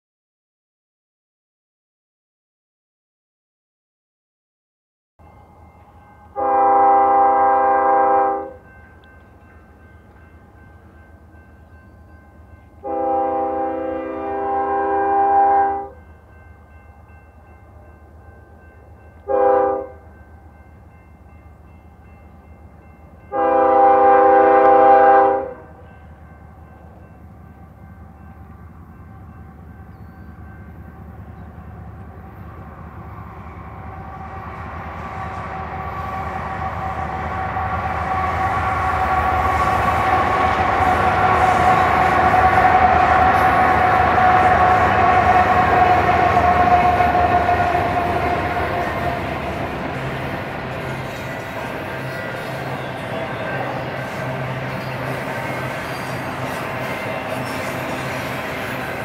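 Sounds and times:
freight train passing: 5.2 - 59.0
locomotive horn blasts: 6.3 - 8.7, 12.8 - 16.0, 19.2 - 20.0, 23.3 - 25.8, 35.2 - 49.3.

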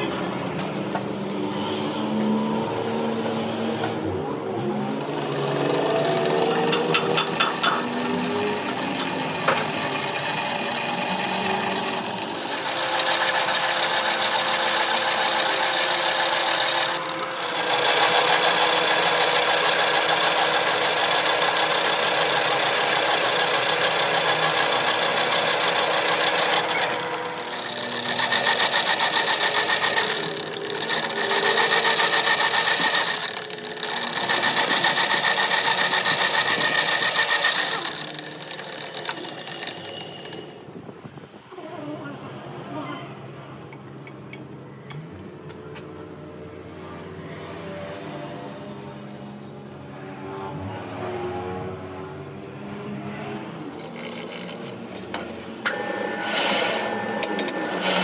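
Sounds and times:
drill press cutting steel: 4.6 - 40.6, 55.6 - 58.0.

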